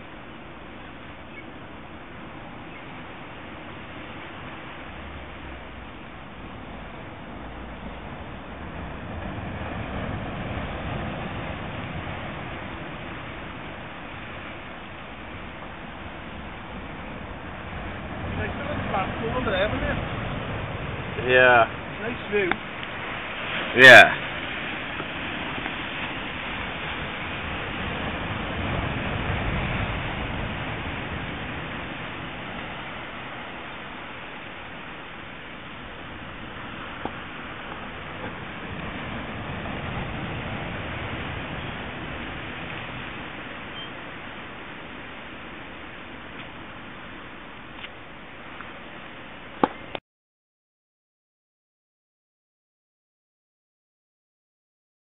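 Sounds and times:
ocean waves washing in: 0.0s - 50.0s
sea surf rushing: 0.0s - 50.0s.

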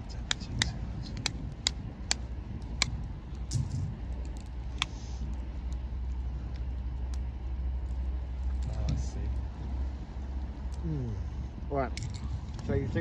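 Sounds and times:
steady low rumble: 0.0s - 13.0s
lobster shell cracking: 0.2s - 9.0s.

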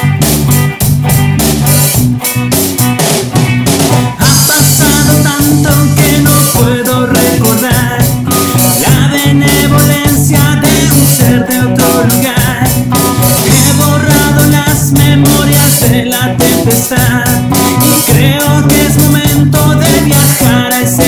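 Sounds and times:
drum kit: 0.0s - 21.0s
electric bass: 0.0s - 21.0s
electric guitar: 0.0s - 21.0s
man singing: 4.2s - 21.0s.

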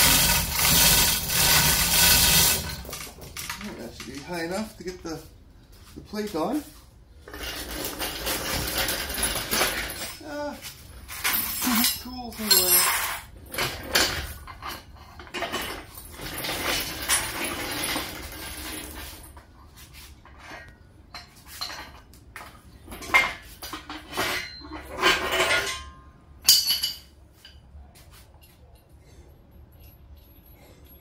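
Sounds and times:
metal tools clinking: 7.2s - 17.8s, 22.8s - 31.0s.

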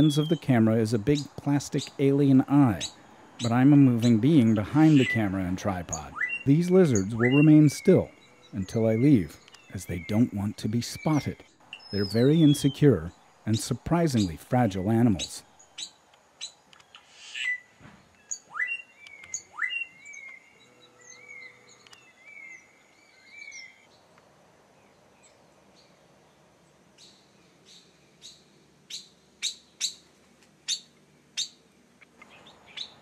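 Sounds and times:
bird chip notes: 0.0s - 16.6s
bird whistling upward notes: 4.7s - 5.4s, 6.1s - 9.7s, 16.9s - 23.9s.

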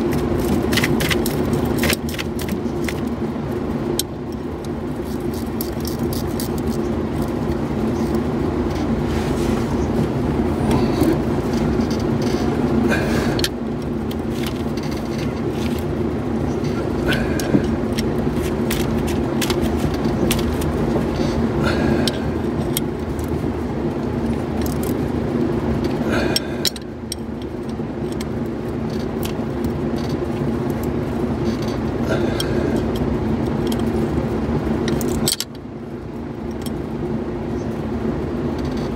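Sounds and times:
loud steady hum: 0.0s - 38.9s.

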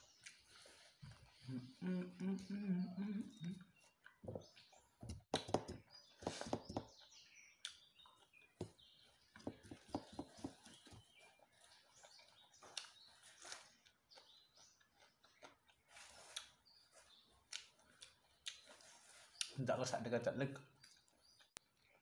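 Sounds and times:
faint bird chirps: 0.0s - 22.0s
person eating: 0.1s - 4.7s, 11.3s - 19.6s.

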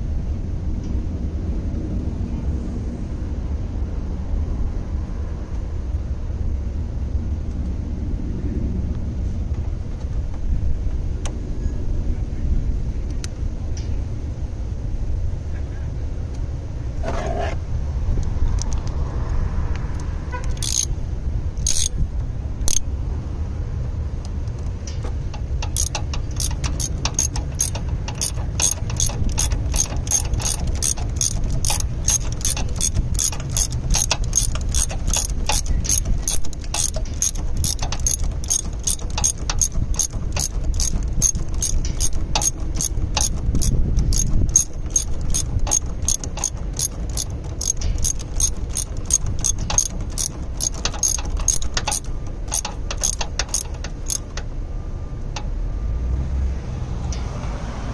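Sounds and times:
steady low rumble: 0.0s - 55.9s
socket ratchet clicking: 20.0s - 21.0s, 21.6s - 22.0s, 22.6s - 22.9s, 24.6s - 54.5s.

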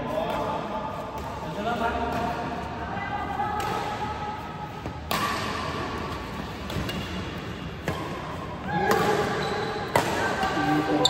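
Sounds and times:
rackets hitting shuttlecock: 3.4s - 11.0s.

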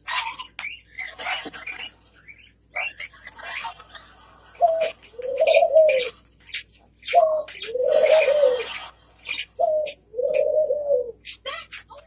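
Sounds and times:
dove cooing: 4.5s - 6.2s, 7.0s - 11.2s.

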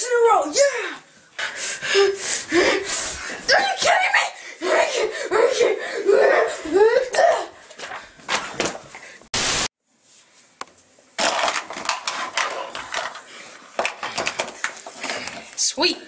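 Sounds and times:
loud burst of hiss: 9.3s - 9.7s.

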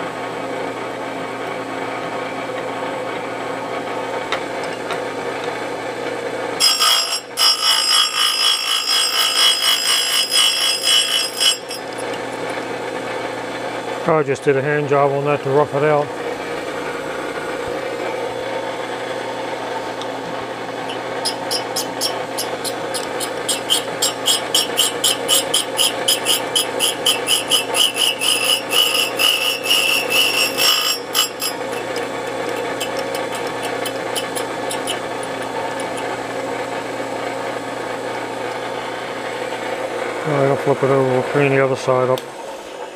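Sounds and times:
motor hum: 0.0s - 42.9s
grinding wheel rasping on metal: 6.6s - 12.4s, 20.8s - 36.4s.

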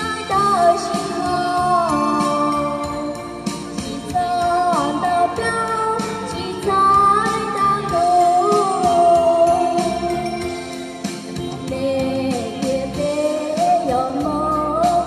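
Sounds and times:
instrumental accompaniment with beat: 0.0s - 15.0s
woman singing into microphone: 0.0s - 15.0s.

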